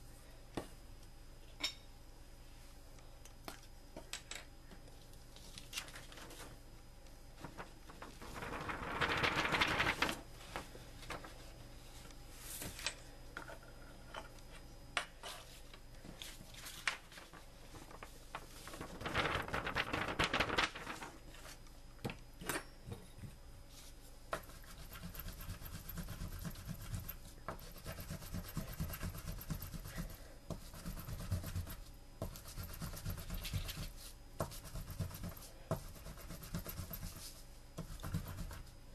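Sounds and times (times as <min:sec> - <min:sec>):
scraping on paper: 0:24.4 - 0:38.7.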